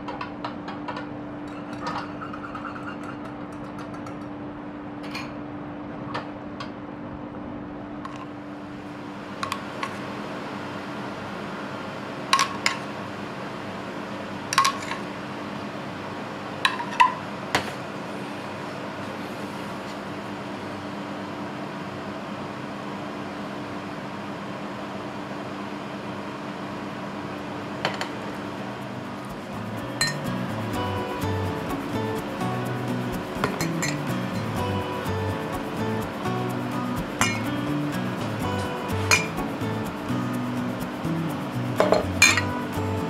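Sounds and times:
steady low hum: 0.0 - 43.0
metal spoon clinking on dish: 41.8 - 42.5.

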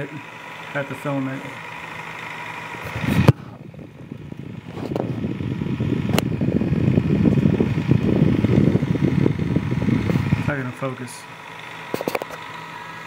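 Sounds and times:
faint motor hum: 0.0 - 13.0
fan air hitting microphone: 0.0 - 13.0.

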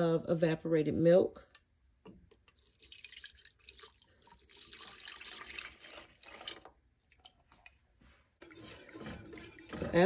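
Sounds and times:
milk pouring into saucepan: 2.3 - 7.8, 8.4 - 10.0.

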